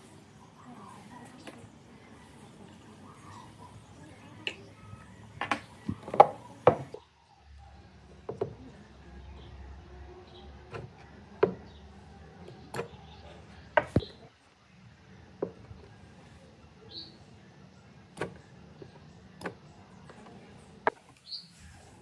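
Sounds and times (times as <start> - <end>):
clicks and knocks on wooden cabinet: 5.4 - 7.0.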